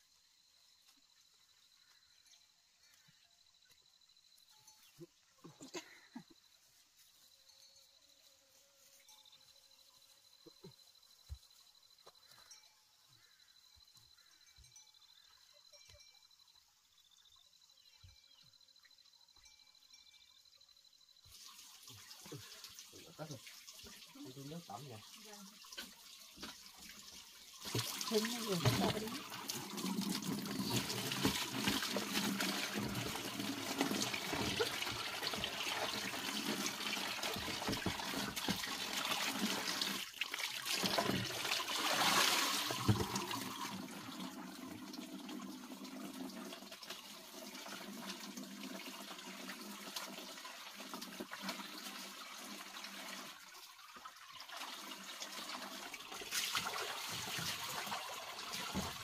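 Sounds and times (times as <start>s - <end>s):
water splashing into plastic basin: 21.3s - 59.0s.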